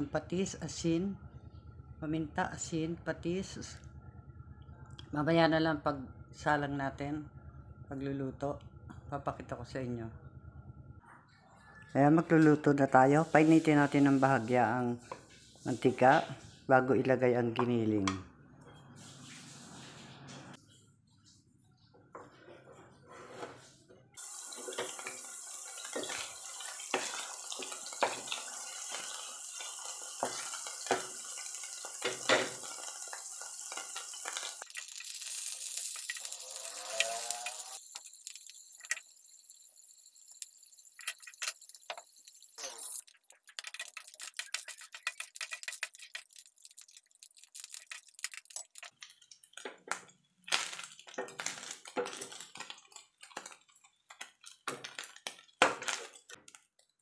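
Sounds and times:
wooden spatula scraping a pan: 22.2s - 25.2s, 43.4s - 46.4s
meat sizzling in a frying pan: 24.2s - 49.0s, 50.5s - 53.7s.

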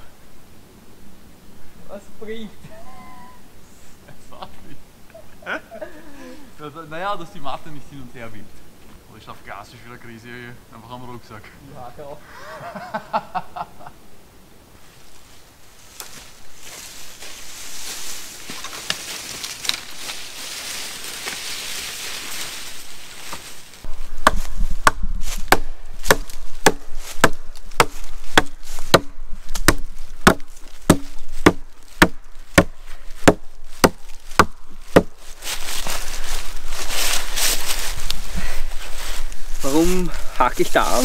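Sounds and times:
wood chopping blows: 24.2s - 35.2s.

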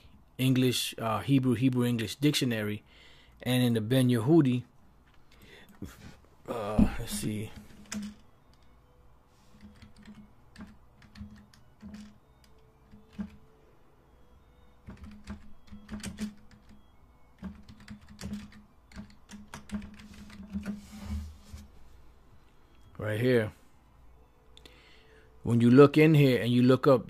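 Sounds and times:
typing on computer keyboard: 9.5s - 13.4s, 14.8s - 20.8s.

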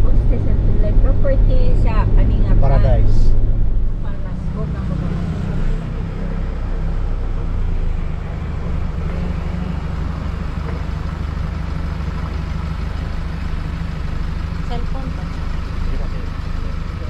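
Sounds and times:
car engine and road noise: 0.0s - 17.0s.

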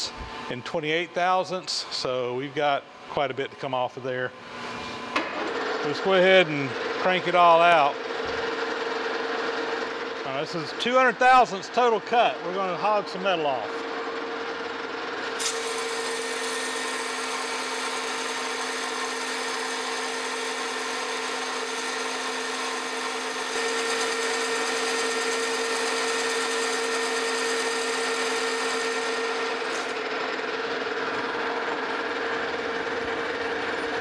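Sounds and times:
lathe motor hum and whine: 0.0s - 3.1s, 4.4s - 34.0s
cutting tool hiss: 15.4s - 18.4s.

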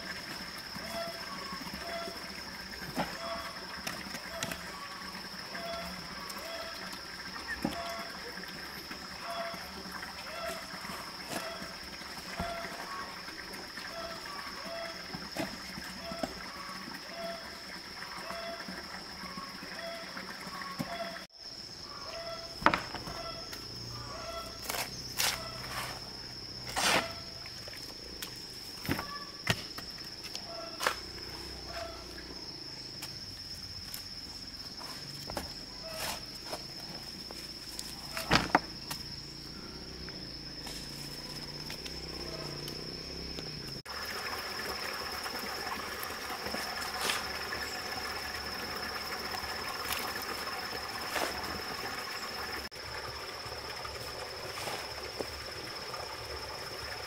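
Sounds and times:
insects trilling: 0.0s - 57.0s.

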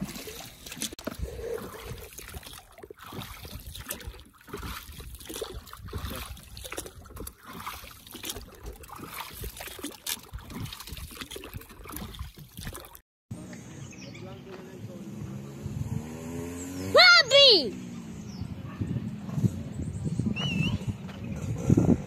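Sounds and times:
water lapping against boat: 0.0s - 13.0s.

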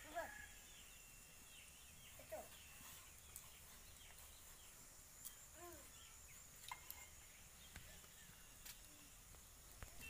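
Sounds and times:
high insect tone: 0.0s - 10.0s.

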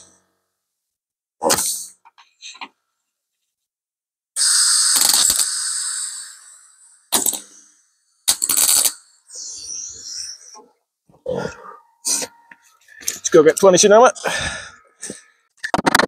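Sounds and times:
welding arc crackle: 4.4s - 7.7s, 8.3s - 10.4s.

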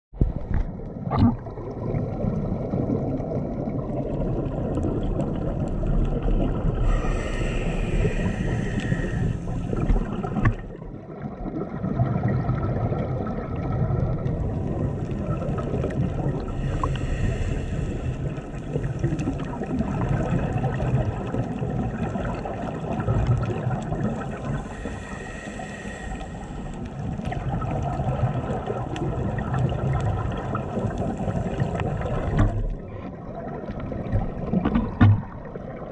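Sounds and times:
gurgling exhaled bubbles: 0.2s - 35.9s
diver breathing through regulator: 6.8s - 10.7s, 16.4s - 19.2s, 24.1s - 27.0s.

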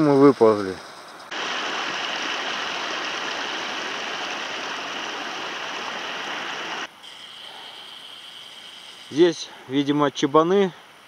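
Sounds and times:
stream water rushing: 1.3s - 7.1s.

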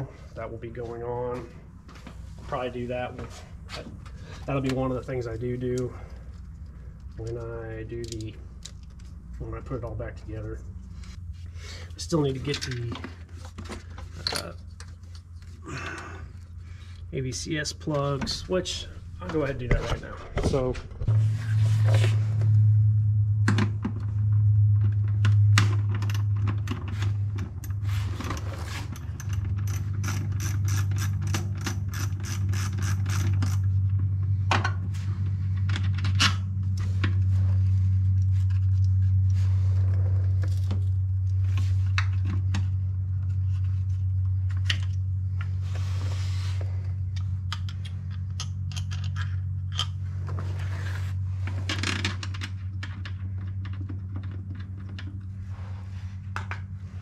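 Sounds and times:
steady low hum: 0.0s - 57.0s
metal tools clinking and scraping: 12.2s - 15.6s
socket ratchet clicking: 29.1s - 33.6s.

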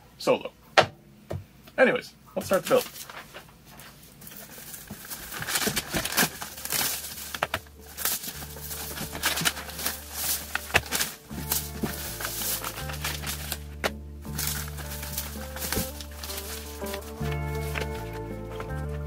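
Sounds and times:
filters rustling and knocking: 2.4s - 19.0s
low background music: 5.0s - 19.0s.

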